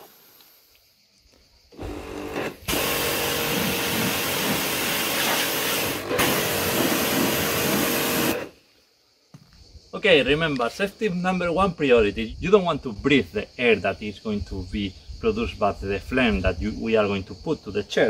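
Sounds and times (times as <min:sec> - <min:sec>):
pressure washer spraying: 0:02.1 - 0:08.5.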